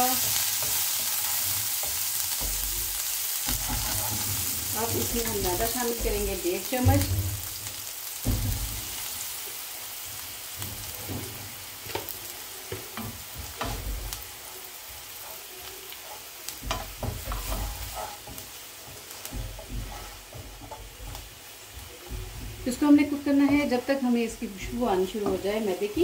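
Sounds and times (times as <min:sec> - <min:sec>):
wooden spatula scraping a pan: 0:00.0 - 0:07.6, 0:10.1 - 0:26.0
onion and garlic sizzling in oil: 0:00.0 - 0:26.0.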